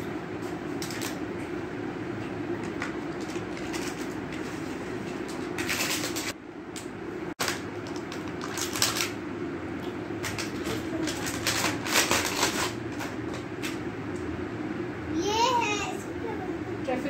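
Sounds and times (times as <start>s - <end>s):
steady low hum: 0.0s - 17.0s
plastic packaging crinkling: 5.3s - 6.4s, 7.4s - 9.2s, 10.2s - 13.1s.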